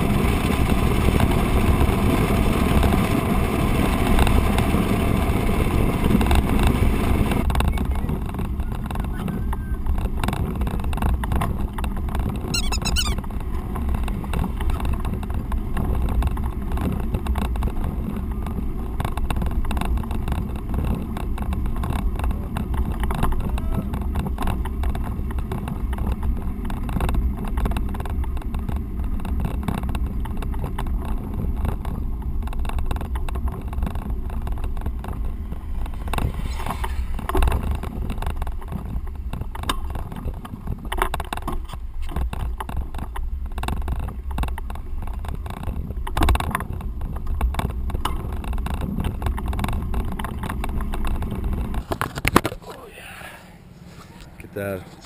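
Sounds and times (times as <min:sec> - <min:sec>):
bicycle tyres rolling on road: 0:00.0 - 0:55.0
high chirp: 0:12.6 - 0:13.2.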